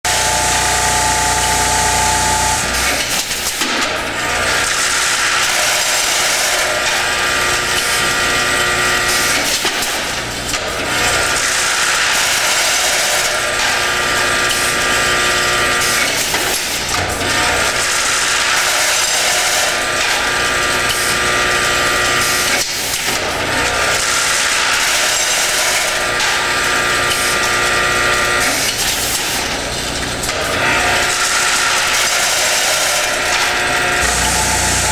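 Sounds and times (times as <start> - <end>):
vibrating tray buzzing: 0.1 - 3.3, 30.5 - 34.9.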